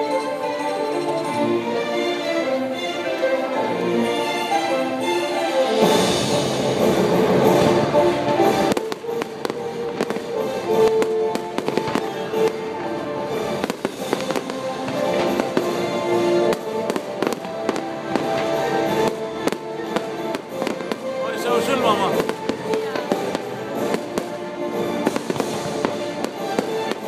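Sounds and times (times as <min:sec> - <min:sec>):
show music: 0:00.0 - 0:27.0
fireworks launches and bursts: 0:05.8 - 0:27.0
fireworks pops and crackles: 0:06.9 - 0:12.8, 0:13.4 - 0:27.0.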